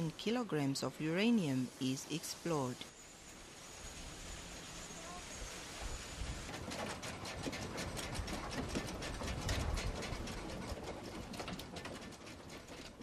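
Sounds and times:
machinery clattering and rattling: 6.2s - 13.0s.

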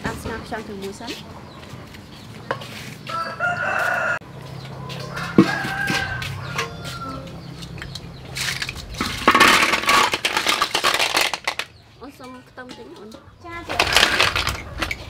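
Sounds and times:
rooster crowing: 3.1s - 7.5s
sea snails clattering into a wok: 8.4s - 11.8s, 13.7s - 15.0s.

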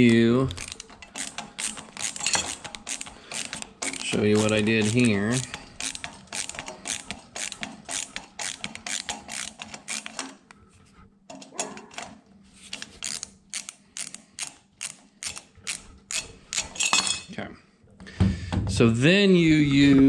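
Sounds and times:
ratcheting screwdriver clicking: 0.4s - 10.5s, 12.7s - 16.8s.

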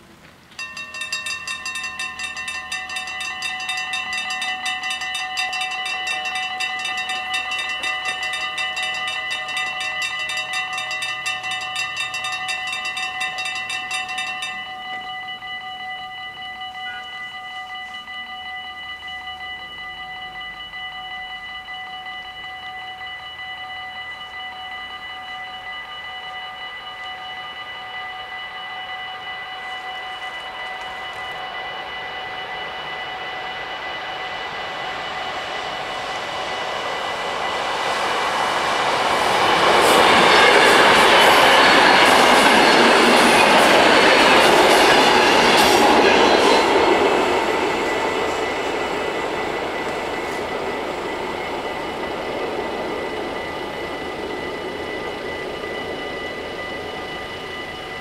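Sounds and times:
level crossing bells ringing: 0.5s - 23.4s, 33.7s - 53.9s.

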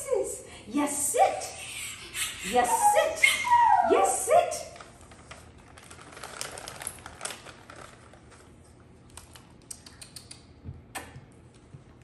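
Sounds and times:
plastic pouch rustling: 4.8s - 9.5s.

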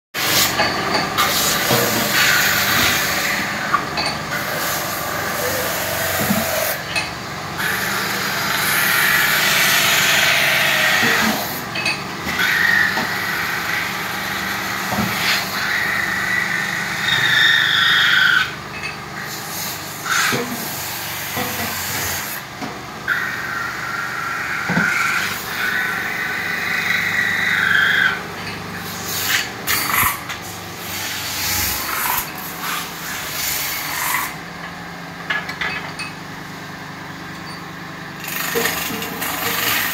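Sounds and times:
lathe humming: 0.2s - 17.8s
tool scraping squeal on spinning metal: 0.2s - 22.4s, 23.1s - 34.4s, 37.4s - 39.9s.

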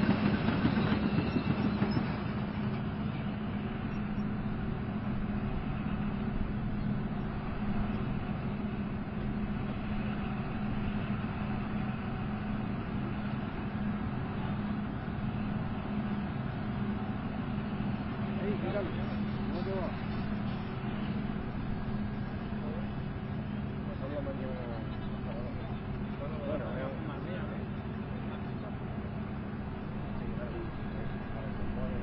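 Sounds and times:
tank diesel engine idling: 0.0s - 32.0s.

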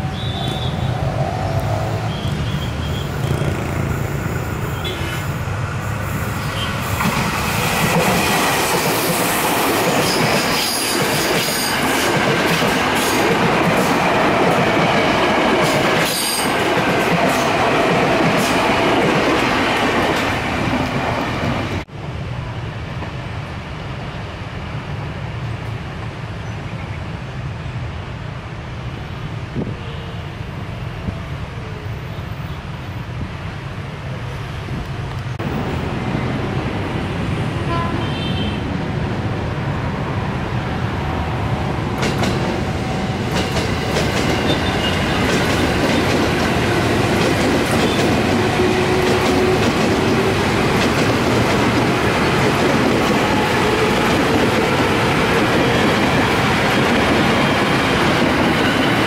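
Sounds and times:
electric train rumbling past: 0.0s - 59.0s
high wheel squeal: 2.0s - 3.6s.

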